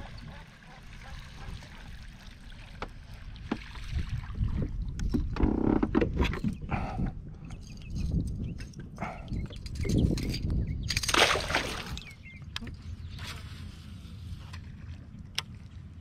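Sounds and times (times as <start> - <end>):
fish splashing at water surface: 11.0 - 12.1.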